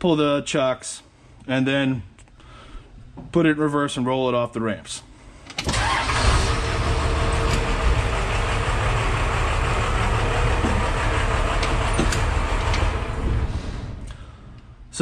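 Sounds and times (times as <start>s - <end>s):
van engine idling: 5.7s - 14.1s.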